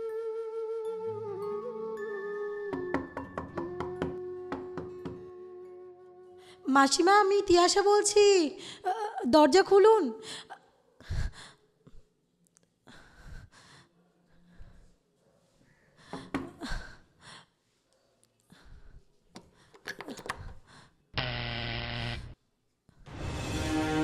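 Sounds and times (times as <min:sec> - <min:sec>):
steady buzzing tone: 0:21.2 - 0:22.4.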